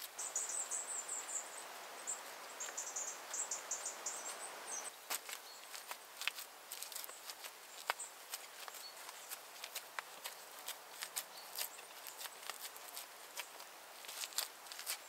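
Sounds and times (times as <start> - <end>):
insect chirping: 0.0 - 5.0
clay smearing rustle: 0.0 - 15.0.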